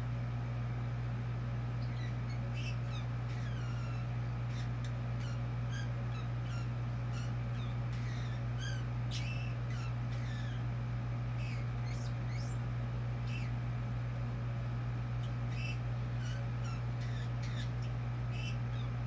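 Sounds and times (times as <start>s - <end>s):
steady low hum: 0.0s - 19.0s
parrot chirping and squeaking: 1.8s - 10.7s, 11.4s - 12.6s, 13.2s - 13.6s, 15.2s - 19.0s.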